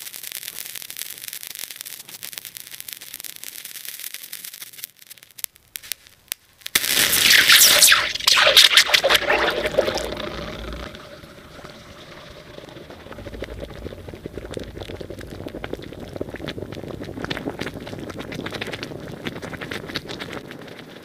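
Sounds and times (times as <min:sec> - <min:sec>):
chemical reaction hissing crackle: 0:00.0 - 0:21.0
sizzling crackle with small pops: 0:00.0 - 0:21.0.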